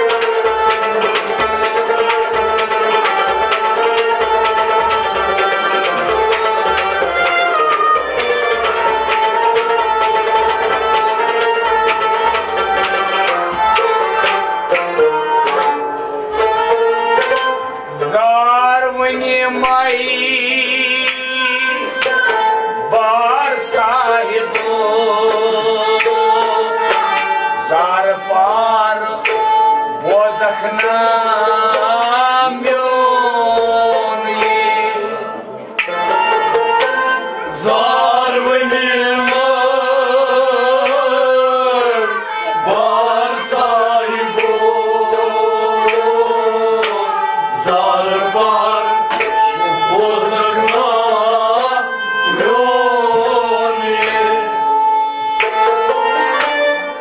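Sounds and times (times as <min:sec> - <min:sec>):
hand drum beat: 0:00.0 - 0:18.2
harmonium and bowed strings droning: 0:00.0 - 0:57.0
man singing: 0:17.9 - 0:22.2, 0:22.8 - 0:36.1, 0:37.4 - 0:54.8.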